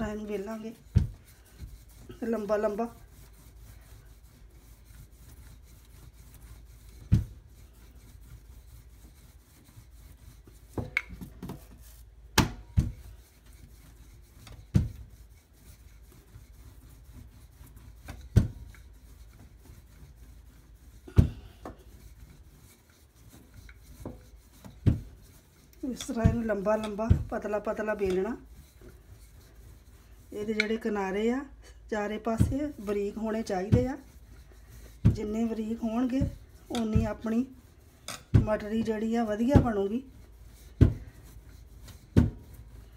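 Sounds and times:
rolling pin rubbing on dough: 0:00.0 - 0:42.9
rolling pin knocking on counter: 0:38.3 - 0:38.6.

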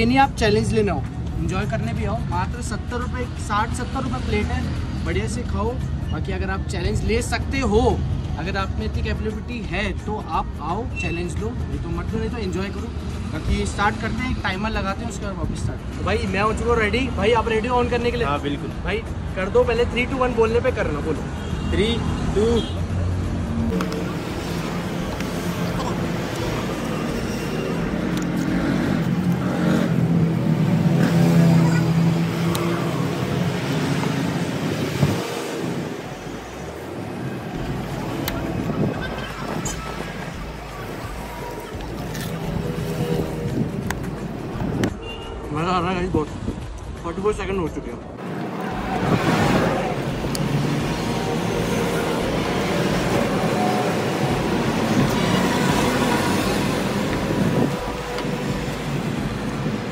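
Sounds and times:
roadside traffic rumble: 0:00.0 - 0:59.9
vehicle engine hum: 0:22.9 - 0:45.2.

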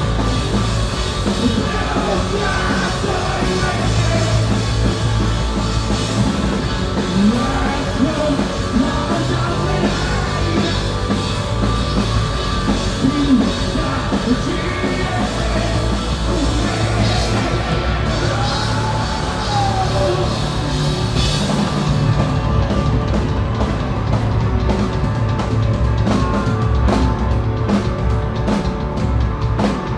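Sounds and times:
live rock band playing: 0:00.0 - 0:29.9
person singing and yelling: 0:01.2 - 0:04.9, 0:07.1 - 0:11.2, 0:13.0 - 0:20.9.

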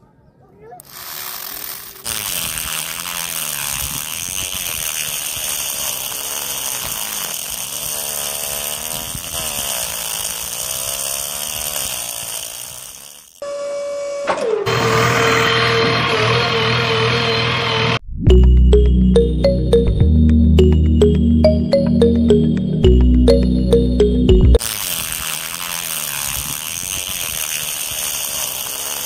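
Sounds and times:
small motor whirring: 0:00.8 - 0:13.7, 0:24.6 - 0:29.0
background music: 0:18.3 - 0:24.6.

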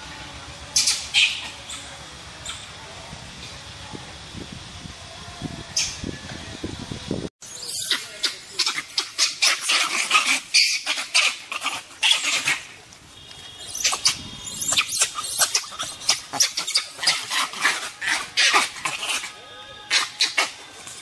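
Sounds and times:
monkeys calling: 0:00.7 - 0:02.8, 0:07.4 - 0:12.8, 0:13.6 - 0:21.0.

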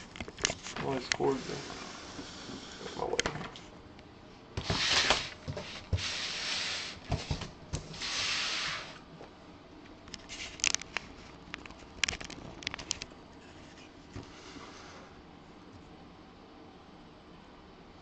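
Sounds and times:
cardboard box scraping on desk: 0:04.6 - 0:09.0.

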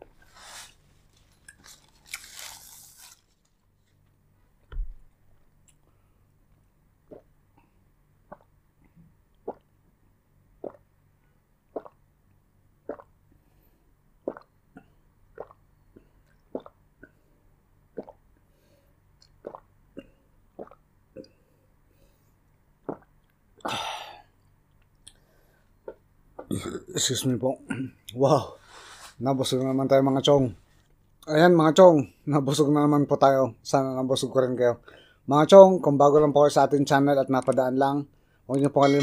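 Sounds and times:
wet mouth clicks: 0:07.1 - 0:07.3, 0:11.7 - 0:12.0, 0:12.9 - 0:13.1, 0:14.3 - 0:14.5, 0:15.4 - 0:15.6, 0:19.2 - 0:21.4, 0:22.8 - 0:23.1.

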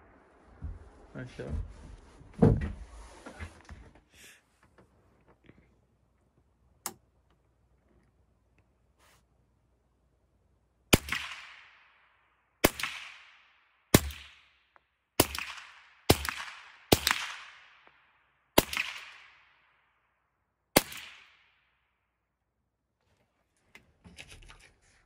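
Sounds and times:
rifle shots with echo: 0:10.9 - 0:14.6, 0:15.2 - 0:19.8, 0:20.8 - 0:21.7.

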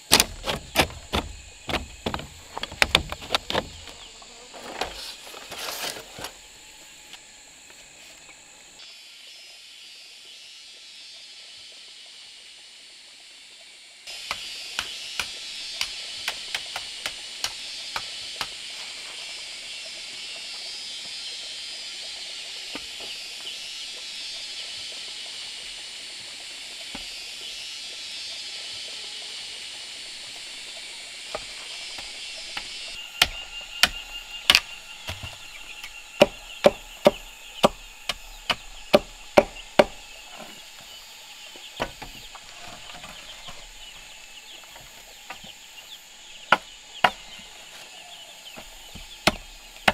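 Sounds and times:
chickens clucking: 0:00.0 - 0:06.0
steady high hiss: 0:02.3 - 0:49.9.

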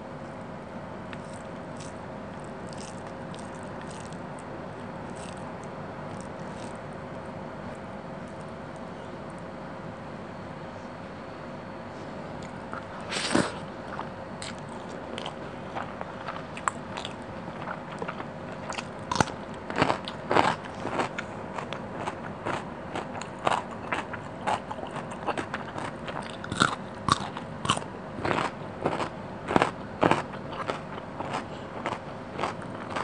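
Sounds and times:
crunches and clicks of chewing: 0:01.1 - 0:04.5, 0:05.1 - 0:06.8, 0:12.4 - 0:33.0
biting and chewing food: 0:01.1 - 0:09.4, 0:12.4 - 0:33.0.

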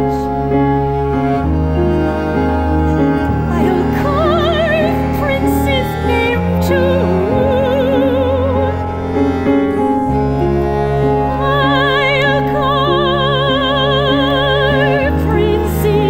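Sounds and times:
instrumental ensemble low chords: 0:00.0 - 0:16.0
soprano singing operatically: 0:03.5 - 0:08.8, 0:11.4 - 0:16.0.

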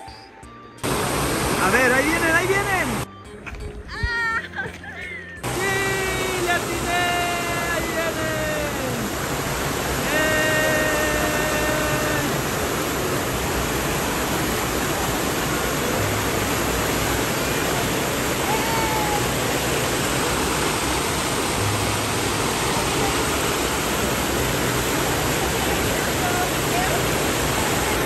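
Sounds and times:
water rushing into pool: 0:00.8 - 0:03.1, 0:05.4 - 0:28.0
person shouting: 0:05.4 - 0:09.1, 0:10.0 - 0:12.4, 0:18.4 - 0:19.4.

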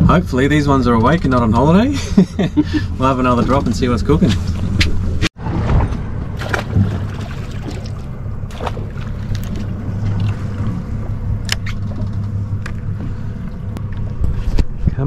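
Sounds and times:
outboard motor idling: 0:06.1 - 0:14.5.

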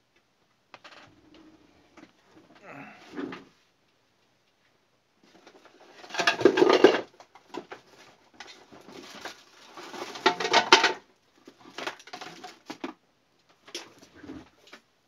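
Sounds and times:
small objects rustling and clattering: 0:05.2 - 0:14.8.

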